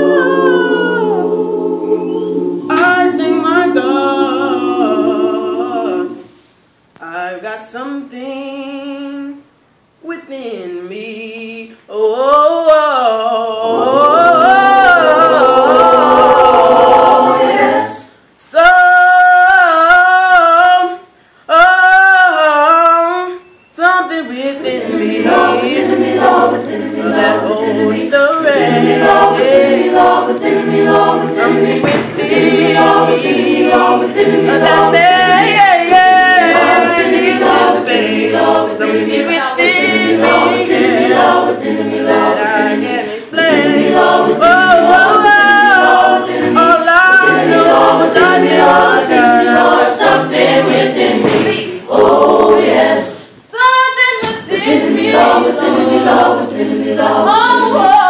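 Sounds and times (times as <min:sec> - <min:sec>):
lead voice singing: 0:00.0 - 0:06.3, 0:18.5 - 0:58.0
a cappella choir singing gospel: 0:00.0 - 0:58.0.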